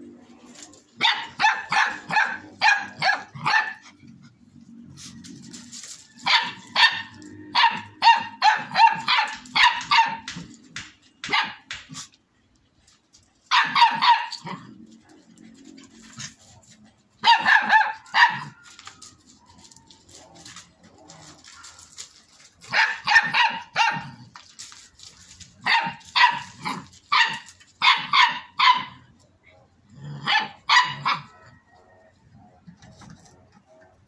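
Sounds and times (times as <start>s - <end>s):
puppy barking high-pitched: 1.0s - 3.9s, 6.2s - 10.4s, 11.2s - 11.7s, 13.5s - 14.6s, 17.2s - 18.7s, 22.6s - 24.2s, 25.6s - 29.1s, 30.2s - 31.6s.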